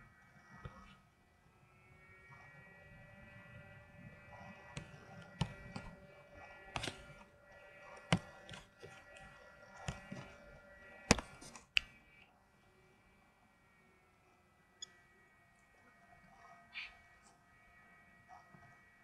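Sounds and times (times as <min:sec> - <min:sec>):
faint electrical whine: 0:00.0 - 0:19.0
computer mouse clicking: 0:04.7 - 0:06.0, 0:06.6 - 0:07.3, 0:07.9 - 0:10.4, 0:11.1 - 0:12.0.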